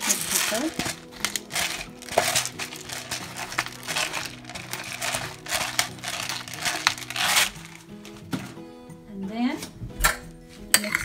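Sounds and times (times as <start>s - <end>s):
rustling crinkling bursts: 0.0s - 8.6s.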